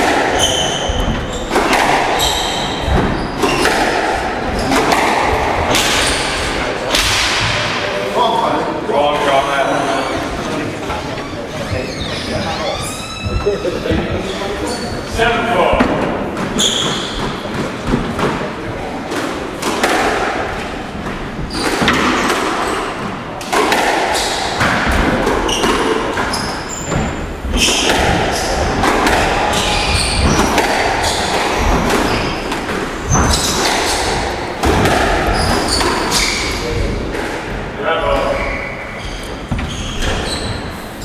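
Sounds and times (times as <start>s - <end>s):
shoe squeaks: 0.3s - 3.8s, 9.7s - 15.3s, 16.5s - 17.5s, 25.4s - 28.6s, 29.5s - 34.3s, 35.3s - 36.8s, 38.2s - 41.0s
squash ball knocks: 19.1s - 37.7s.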